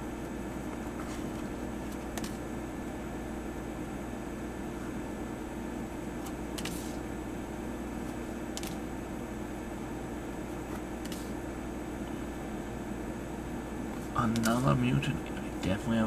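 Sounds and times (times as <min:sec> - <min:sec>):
cards sliding from a stack: 0:06.2 - 0:07.0, 0:11.0 - 0:11.3.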